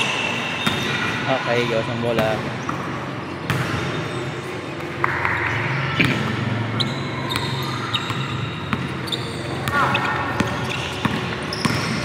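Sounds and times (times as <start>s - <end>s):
basketball bouncing on court: 0.0s - 4.2s, 4.8s - 12.0s
sneakers squeaking: 0.0s - 12.0s.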